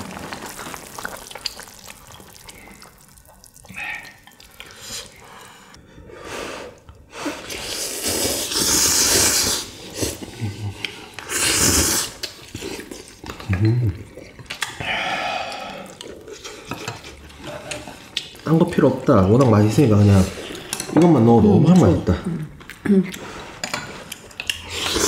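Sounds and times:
noisy slurping of broth: 0:06.4 - 0:13.2, 0:24.5 - 0:25.0.

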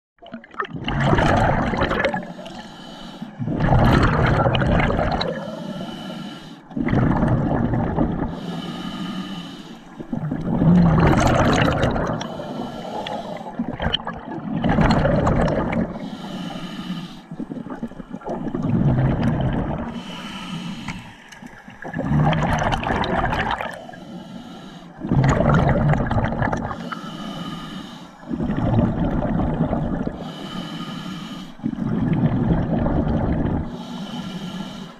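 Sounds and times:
exhaled bubbles rushing: 0:00.2 - 0:02.5, 0:03.4 - 0:05.6, 0:06.7 - 0:08.4, 0:10.0 - 0:16.0, 0:17.4 - 0:20.1, 0:20.9 - 0:23.8, 0:25.0 - 0:26.9, 0:28.3 - 0:30.2, 0:31.6 - 0:33.8
hissing regulator inhale: 0:02.2 - 0:03.5, 0:05.3 - 0:06.7, 0:08.3 - 0:10.2, 0:12.1 - 0:13.7, 0:15.9 - 0:17.5, 0:19.9 - 0:21.8, 0:23.7 - 0:25.1, 0:26.8 - 0:28.5, 0:30.1 - 0:31.7, 0:33.7 - 0:34.9.

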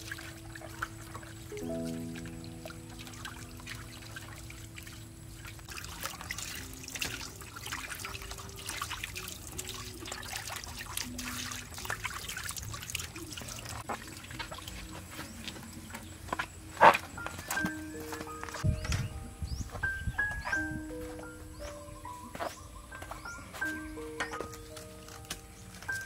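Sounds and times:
small splashes and knocks: 0:00.0 - 0:18.9
water trickling into metal basin: 0:00.0 - 0:19.3.

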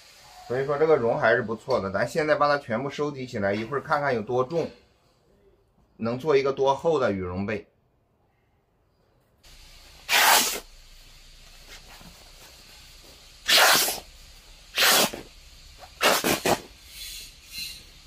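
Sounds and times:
fabric tearing: 0:10.1 - 0:10.6, 0:13.5 - 0:14.0, 0:14.8 - 0:15.2, 0:16.0 - 0:16.7.

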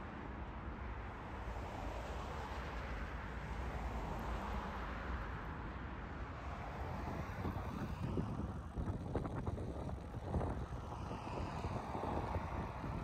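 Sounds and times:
wind rushing over microphone: 0:06.7 - 0:13.0.

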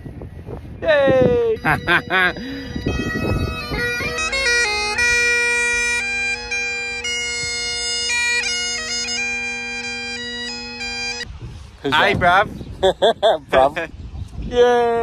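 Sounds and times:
bagpipe playing a tune: 0:01.6 - 0:11.3.

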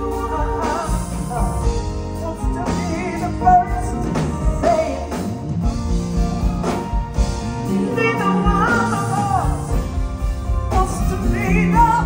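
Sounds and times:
woman singing into a microphone: 0:00.0 - 0:05.3, 0:07.6 - 0:10.0, 0:10.7 - 0:12.0
band with keyboard and beat: 0:00.0 - 0:12.0.

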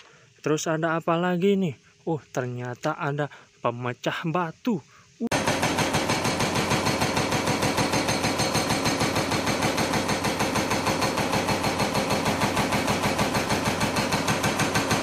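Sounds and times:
hydraulic breaker hammering rock: 0:05.3 - 0:15.0.

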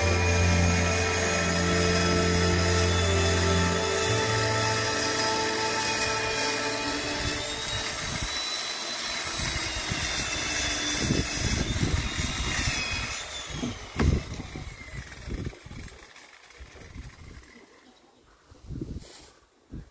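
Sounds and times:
low rumbling: 0:00.0 - 0:08.4
chainsaw engine whine: 0:00.0 - 0:17.8.

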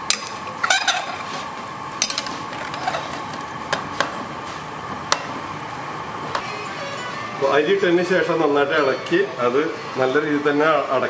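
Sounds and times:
metal ladle scraping pressure cooker: 0:00.6 - 0:01.3, 0:02.0 - 0:03.3.

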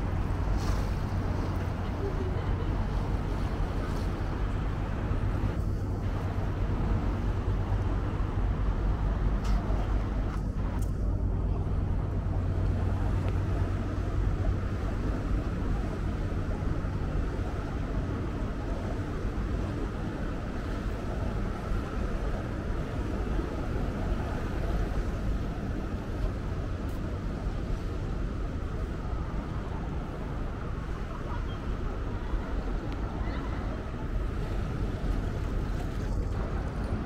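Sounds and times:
boat engine humming: 0:00.0 - 0:37.0
water wash: 0:00.0 - 0:37.0.

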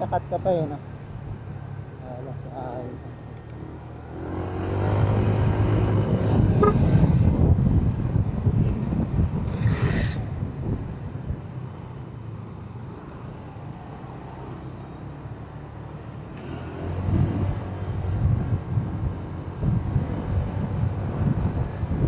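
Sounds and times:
motorcycle engine: 0:04.1 - 0:07.3
wind noise: 0:04.6 - 0:11.6, 0:16.9 - 0:22.0.

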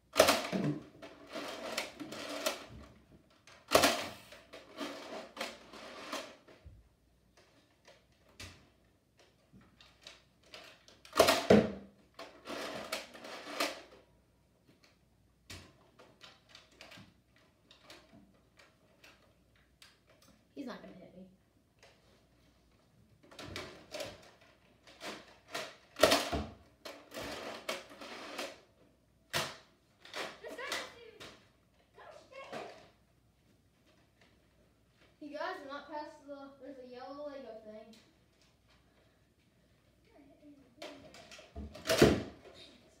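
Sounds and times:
foam-dart blasters clacking: 0:03.7 - 0:04.3, 0:30.2 - 0:31.3.

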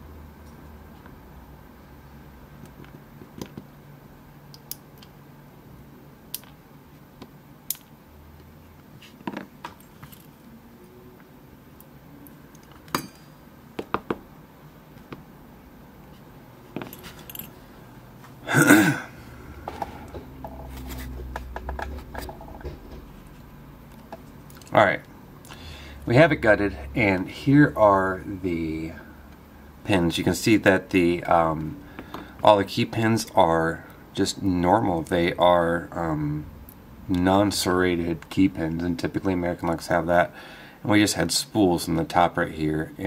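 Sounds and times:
small metal parts clicking and tapping: 0:07.7 - 0:07.9.

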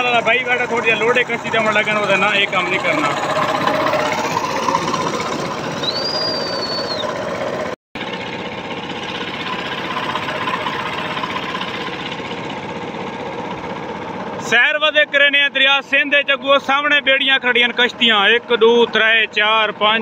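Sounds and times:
boat engine chugging: 0:00.0 - 0:20.0
short high whistle: 0:05.8 - 0:07.2.

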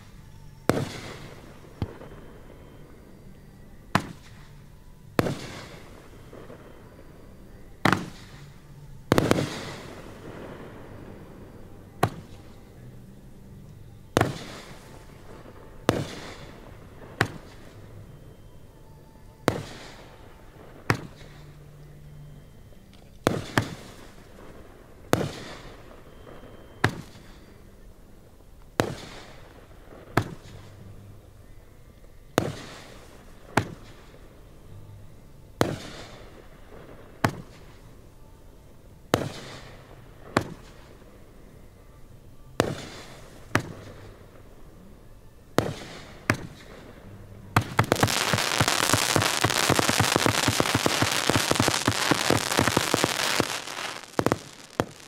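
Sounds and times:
firework shells bursting: 0:47.6 - 0:55.0
rapid crackling pops: 0:47.6 - 0:55.0.

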